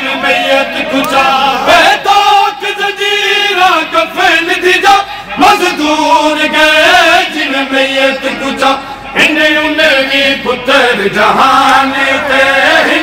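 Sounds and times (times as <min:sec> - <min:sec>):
men chanting a lament: 0:00.0 - 0:13.0.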